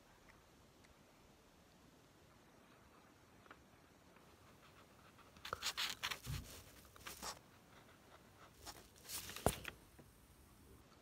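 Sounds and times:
paper rustling: 5.4s - 7.4s, 8.6s - 9.8s.

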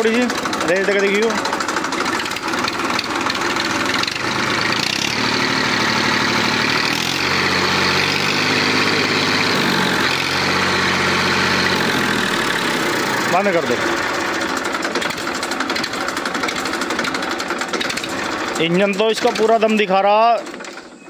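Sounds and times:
tractor diesel engine revving: 0.0s - 20.9s.

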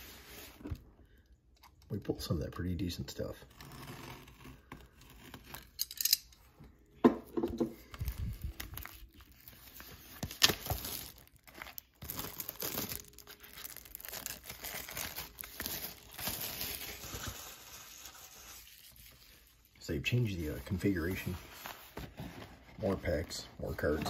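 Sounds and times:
packaging tearing and crinkling: 7.9s - 19.7s.

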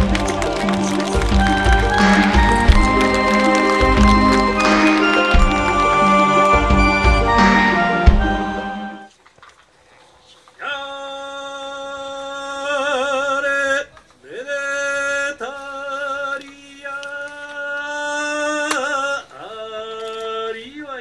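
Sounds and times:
man chanting work song: 10.6s - 21.0s.

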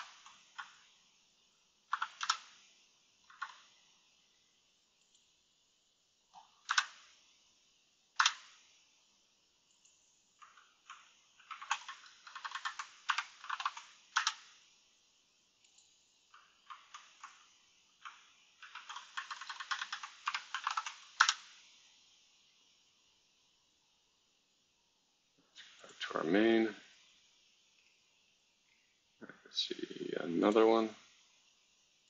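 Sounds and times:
keyboard typing: 0.0s - 0.8s, 1.9s - 2.6s, 3.3s - 3.8s, 6.4s - 7.1s, 8.2s - 8.6s, 9.7s - 14.6s, 15.6s - 21.5s.

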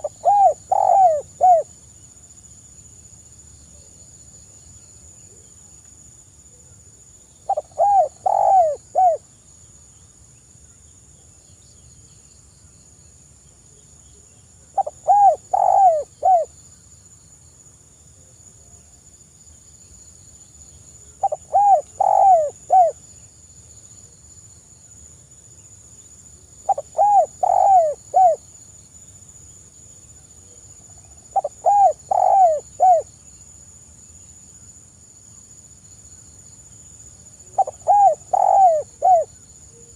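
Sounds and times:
dove cooing: 0.0s - 1.7s, 7.5s - 9.2s, 14.8s - 16.5s, 21.2s - 23.0s, 26.7s - 28.4s, 31.3s - 33.1s, 37.5s - 39.9s.

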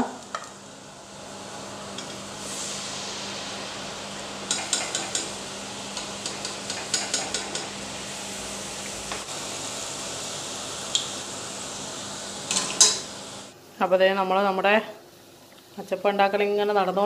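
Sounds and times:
batter sizzling in hot oil: 0.1s - 13.5s
utensils clinking against pan: 12.5s - 13.1s.

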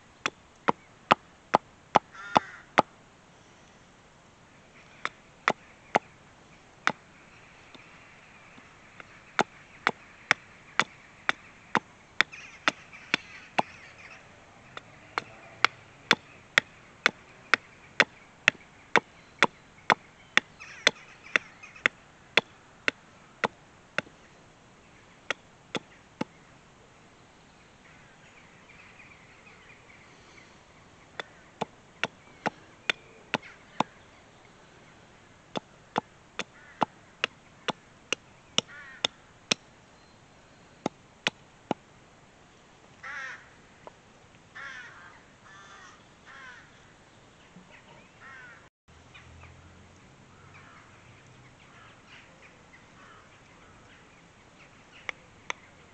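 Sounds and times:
hatchet chopping wood: 9.0s - 13.7s, 14.7s - 20.0s.

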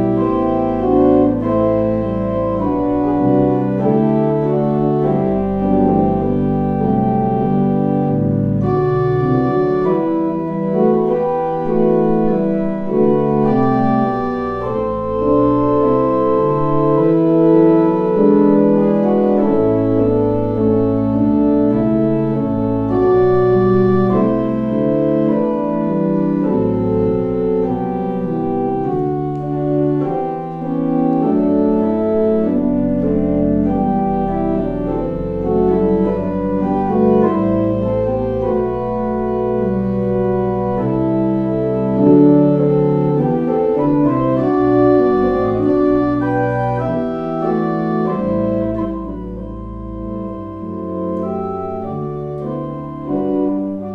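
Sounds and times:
church organ chords: 0.0s - 53.9s
deep organ pedal notes: 0.0s - 53.9s.

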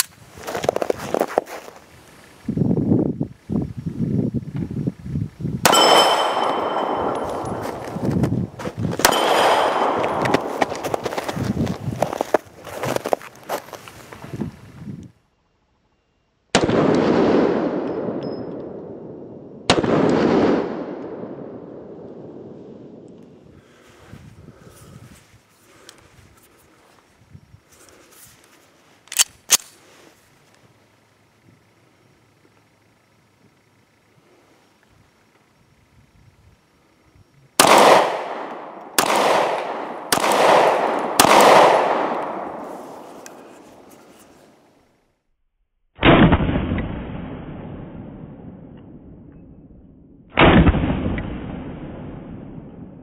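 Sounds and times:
pistol shots with echo: 5.6s - 8.0s, 9.0s - 10.8s, 16.5s - 22.4s, 37.6s - 43.1s.

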